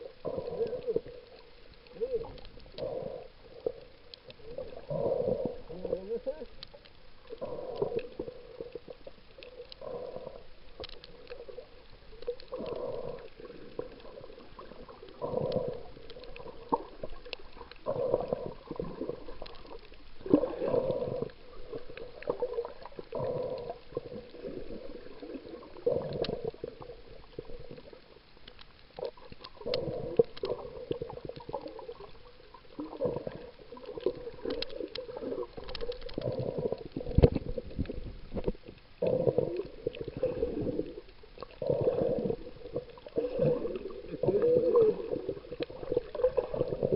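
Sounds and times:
underwater snorkel breathing: 0.0s - 6.0s, 7.2s - 28.0s, 29.0s - 32.1s, 32.7s - 46.9s
faint clicks: 0.1s - 40.4s.

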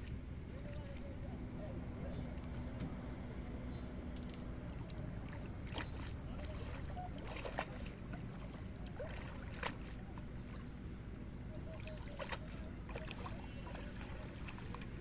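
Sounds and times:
water sloshing and splashing: 0.0s - 3.3s, 3.9s - 15.0s
steady low rumble: 0.0s - 15.0s
sharp splashes: 4.6s - 10.8s, 11.6s - 15.0s.

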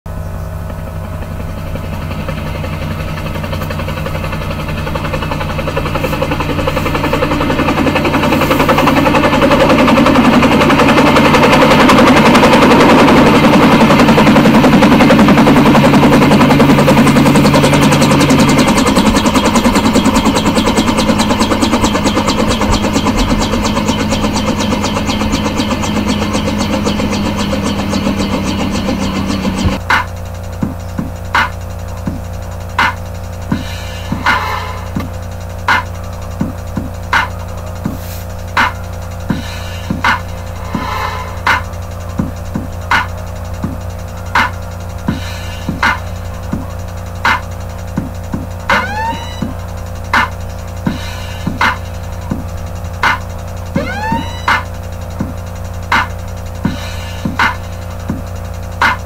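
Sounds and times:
rapid rattling beat pattern: 0.1s - 59.0s
held bass note: 48.7s - 49.6s, 53.7s - 54.9s.

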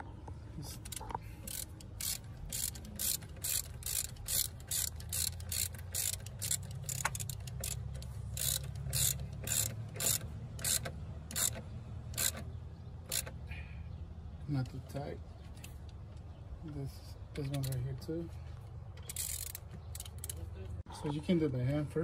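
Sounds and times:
ratchet clicking: 0.7s - 12.5s, 13.1s - 13.4s, 19.0s - 20.4s.

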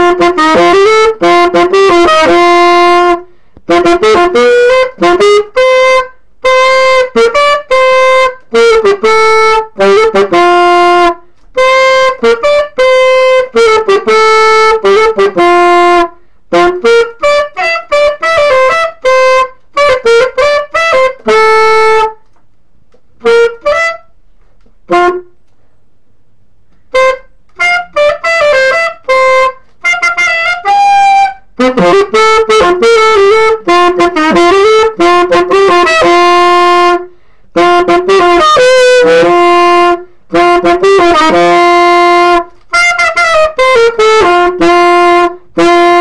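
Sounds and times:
solo saxophone melody: 0.0s - 22.4s, 23.2s - 24.2s, 24.8s - 25.6s, 26.7s - 46.0s.

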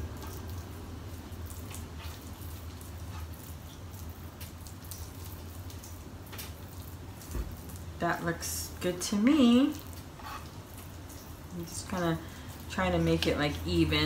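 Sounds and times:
oven fan humming: 0.0s - 14.0s
spoon spreading mashed potato: 1.6s - 5.1s, 9.7s - 11.4s.

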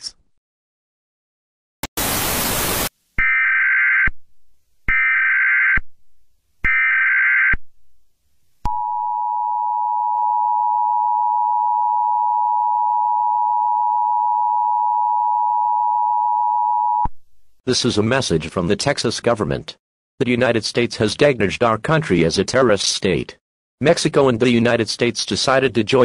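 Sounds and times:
tv static: 1.9s - 2.9s
two-tone alarm: 3.2s - 4.1s, 4.9s - 5.8s, 8.7s - 17.1s.

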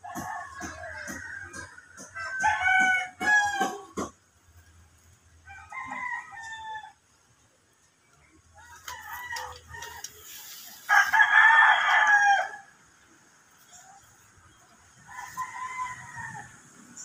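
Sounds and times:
rooster crowing: 0.1s - 3.9s, 5.5s - 7.0s, 10.8s - 12.8s, 15.0s - 16.7s.

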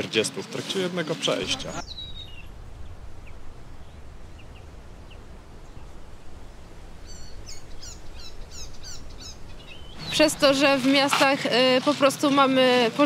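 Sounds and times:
songbird chirping: 1.1s - 11.1s
low background rumble: 1.4s - 11.1s.

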